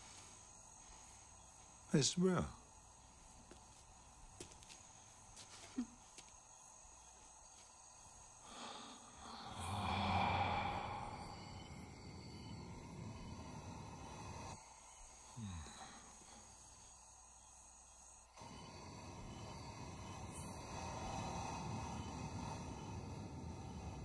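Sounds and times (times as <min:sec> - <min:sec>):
crickets chirping: 0:00.0 - 0:24.0
low drone: 0:08.6 - 0:14.6.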